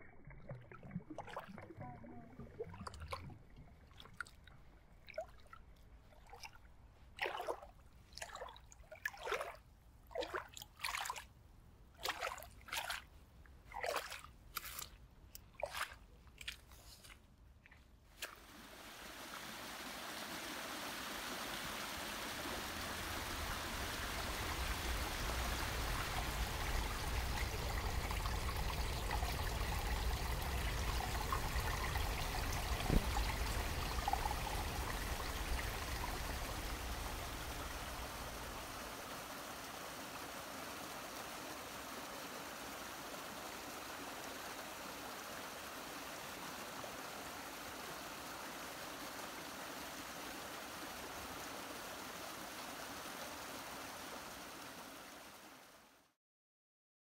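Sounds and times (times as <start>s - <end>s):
brook water rushing: 18.2s - 55.8s.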